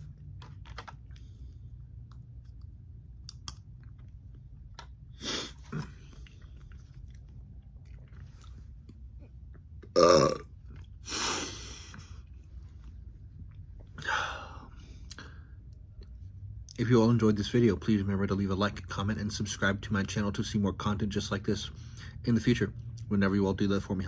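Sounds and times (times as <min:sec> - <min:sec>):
soft mouth sounds and clicks: 0:01.9 - 0:09.9, 0:15.0 - 0:16.8
person belching loudly: 0:09.9 - 0:10.5.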